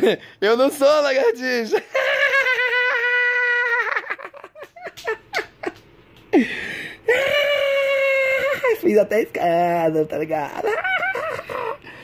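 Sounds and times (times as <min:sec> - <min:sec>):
man's falsetto laughter: 0:01.8 - 0:04.6, 0:10.6 - 0:11.8.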